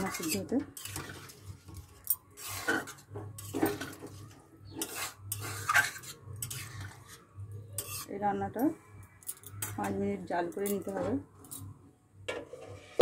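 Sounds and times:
metal spatula scraping pan: 0.0s - 8.7s, 12.3s - 13.0s.

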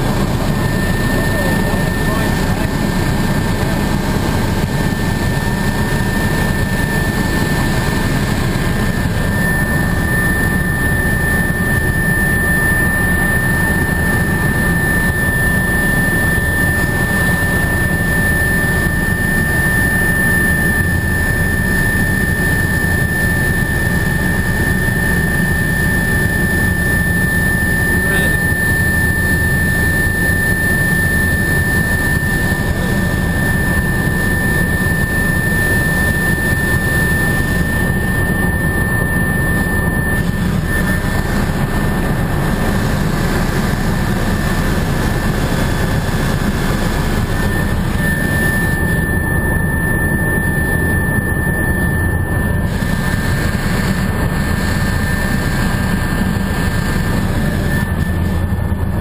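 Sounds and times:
helicopter rotor and engine drone: 0.0s - 59.0s
high whine: 0.0s - 59.0s.

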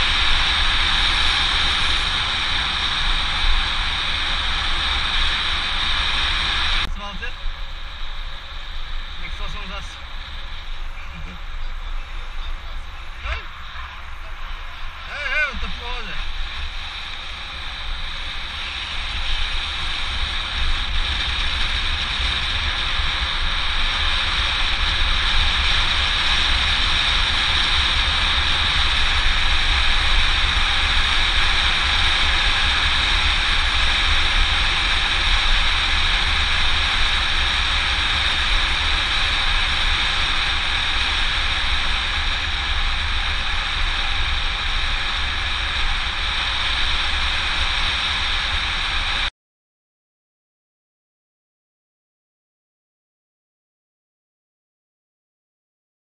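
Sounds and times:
bike tyres on asphalt: 0.0s - 49.3s
wind rushing over microphone: 0.0s - 49.3s.

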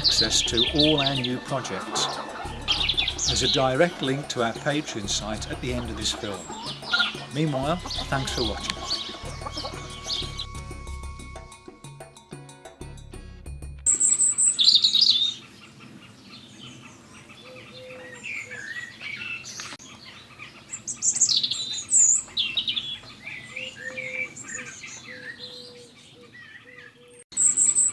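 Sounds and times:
birds chirping and singing: 0.0s - 11.9s, 13.9s - 27.9s
closing music: 0.0s - 13.8s.

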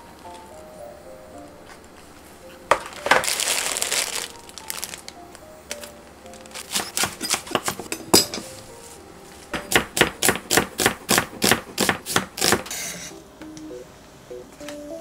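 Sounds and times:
light background music: 0.0s - 15.0s
knife chopping on cutting board: 6.7s - 8.4s, 9.6s - 12.6s.

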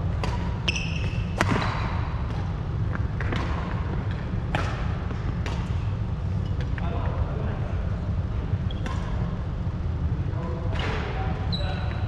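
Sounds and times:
rackets striking shuttlecock: 0.1s - 5.9s
shoe squeak on wooden floor: 0.7s - 1.8s, 11.5s - 12.0s.

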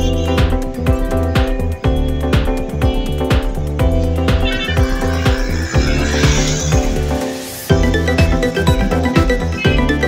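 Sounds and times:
electronic music with beat: 0.0s - 10.0s
rising swoosh: 4.4s - 8.6s.

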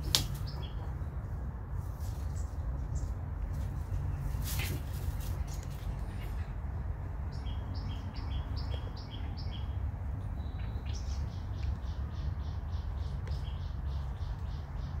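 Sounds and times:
steady low rumble: 0.0s - 15.0s.

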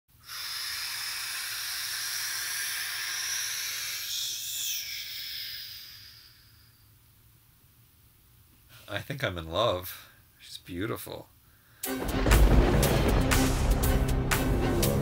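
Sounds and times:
high whistling hiss: 0.2s - 7.3s.

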